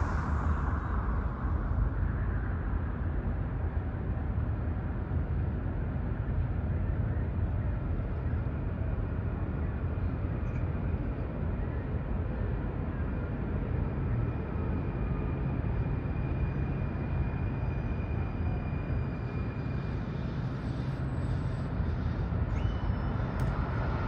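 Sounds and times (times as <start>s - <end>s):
light rail train rumbling: 0.0s - 24.0s
street traffic: 5.0s - 24.0s.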